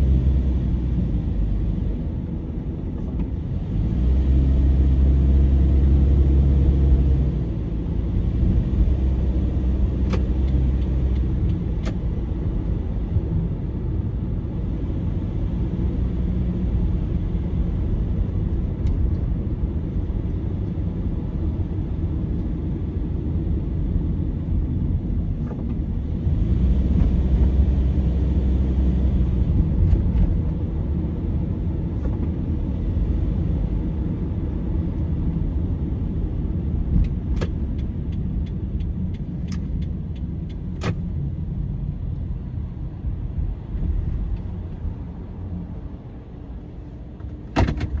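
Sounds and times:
car engine and road rumble: 0.0s - 48.0s.

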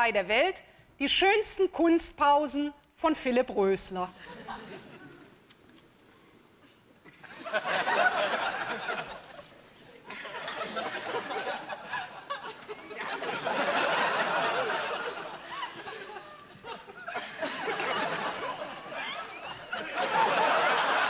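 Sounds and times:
audience laughter: 7.2s - 21.0s.

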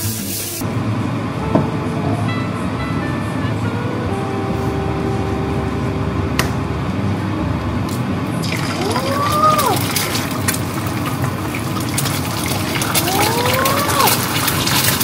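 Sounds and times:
egg sizzling in a pan: 8.5s - 15.0s.

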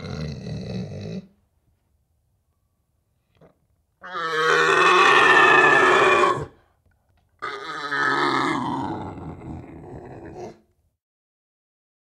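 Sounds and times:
deer stag roaring: 4.0s - 6.6s, 7.4s - 10.6s.

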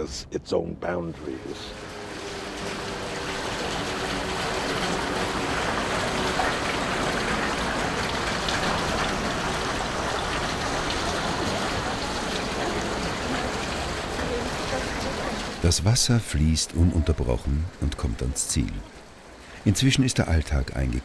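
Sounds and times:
river water rushing: 1.3s - 15.7s.

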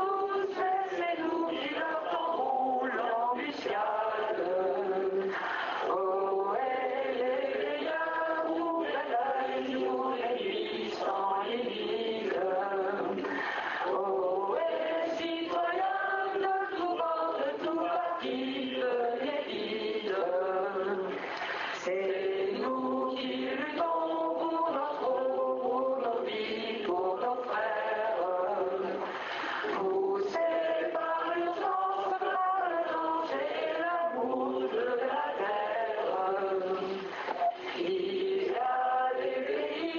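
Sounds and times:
chant-like singing: 0.0s - 39.9s.

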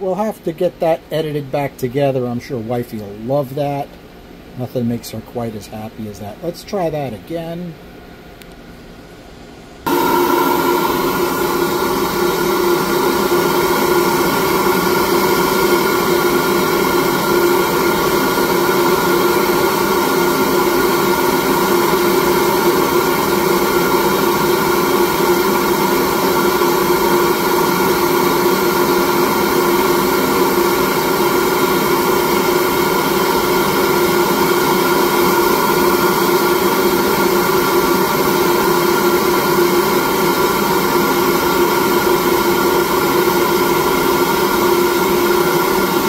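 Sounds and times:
flow bench rushing air: 9.8s - 46.0s.

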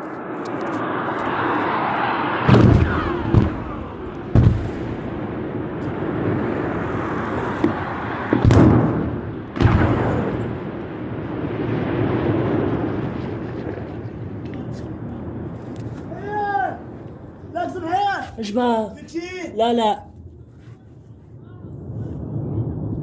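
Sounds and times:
aircraft rushing overhead: 0.0s - 18.2s
heavy explosions with rumbling tails: 1.4s - 18.1s, 21.6s - 23.0s.

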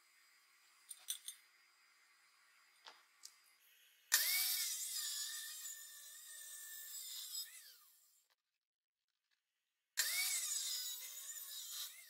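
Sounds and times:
chop saw grinding through steel: 4.1s - 8.2s, 10.0s - 12.0s.

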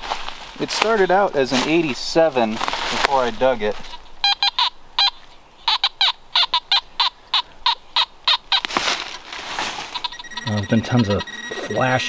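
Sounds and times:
metal detector beeps: 4.2s - 5.1s, 9.9s - 12.0s.

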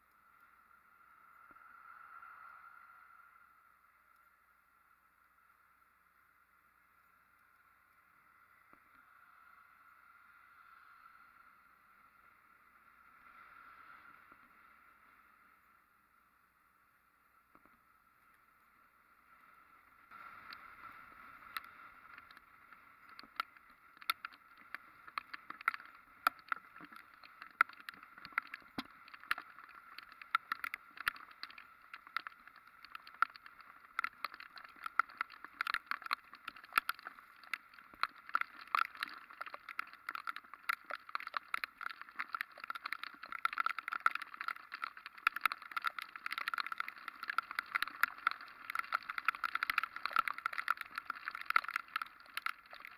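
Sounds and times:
raindrops striking a camera: 20.1s - 52.9s.

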